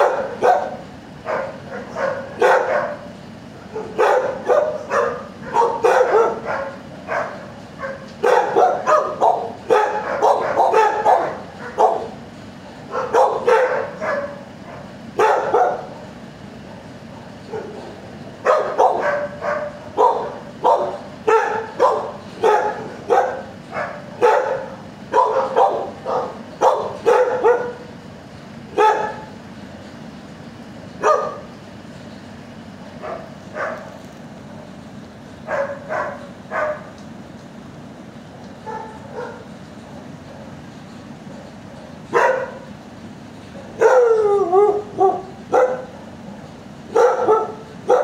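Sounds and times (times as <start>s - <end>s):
dog barking: 0.0s - 3.1s, 3.7s - 12.2s, 12.9s - 16.1s, 17.2s - 27.9s, 28.8s - 29.3s, 31.0s - 31.5s, 33.0s - 33.9s, 35.5s - 36.9s, 38.6s - 39.5s, 41.3s - 42.7s, 43.6s - 46.1s, 46.9s - 48.0s
low background hum: 0.0s - 48.0s.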